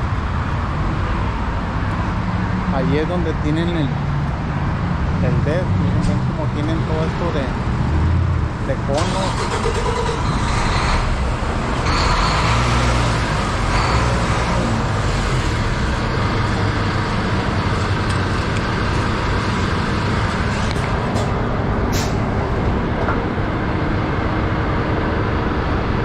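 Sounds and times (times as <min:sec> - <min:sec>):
diesel truck engines idling: 0:01.5 - 0:26.0
brief sharp hiss: 0:21.9 - 0:22.2.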